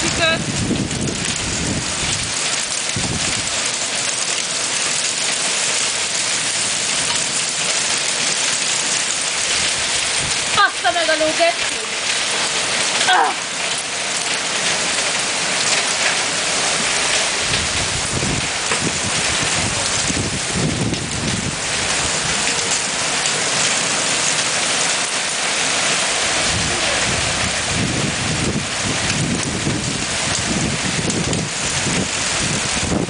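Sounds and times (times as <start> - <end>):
hail and rain pattering: 0.0 - 33.0
low rumbles: 17.2 - 22.4, 25.7 - 33.0.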